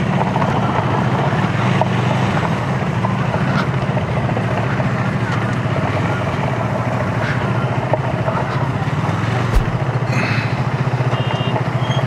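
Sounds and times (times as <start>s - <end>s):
motorcycle engine running: 9.3s - 10.0s
sharp knock: 9.5s - 9.9s.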